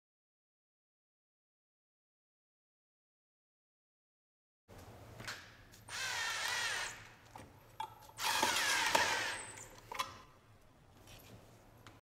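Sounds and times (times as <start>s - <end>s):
power drill whining: 5.9s - 7.1s, 8.2s - 9.8s.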